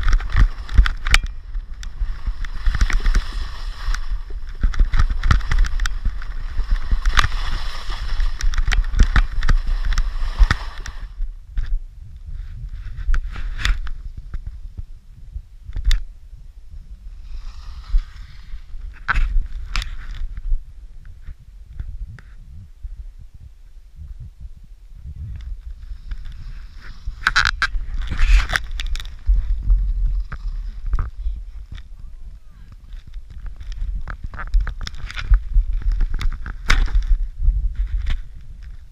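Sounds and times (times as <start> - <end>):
skis scraping over hard snow: 0.0 - 11.2, 17.1 - 20.4, 25.4 - 32.0, 32.8 - 38.9
wind rumble on microphone: 0.0 - 38.9.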